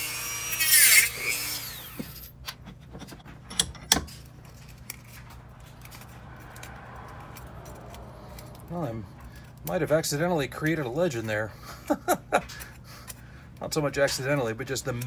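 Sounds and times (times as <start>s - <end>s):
rotary tool cutting plastic: 0.0s - 2.3s.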